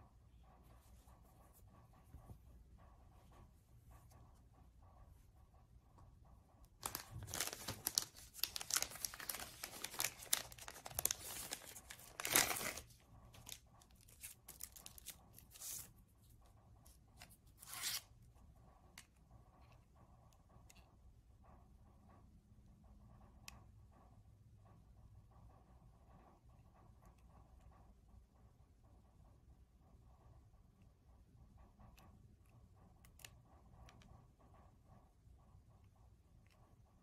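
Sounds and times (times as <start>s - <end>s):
faint handling noise: 6.7s - 18.1s
plastic sleeve crinkling: 6.8s - 15.9s.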